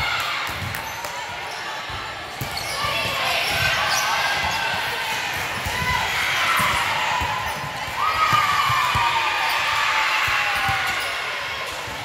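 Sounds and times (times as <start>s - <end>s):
volleyballs and feet thudding: 1.9s - 9.2s.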